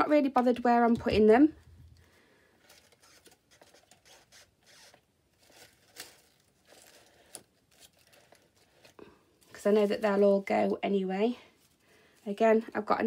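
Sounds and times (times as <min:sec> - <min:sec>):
craft flowers rustling and scraping: 0:02.6 - 0:12.6.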